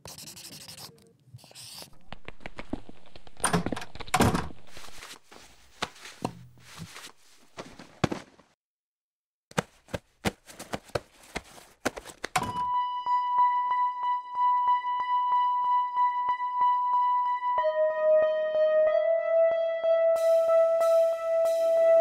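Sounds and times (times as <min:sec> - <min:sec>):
music: 0:12.6 - 0:22.0.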